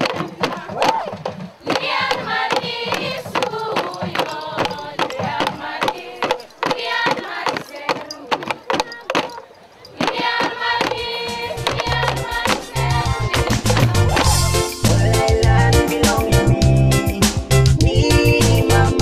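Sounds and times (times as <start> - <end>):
women singing together: 0.0 - 16.4
sharp regular beats: 0.0 - 17.6
deep bass beat: 11.5 - 19.0.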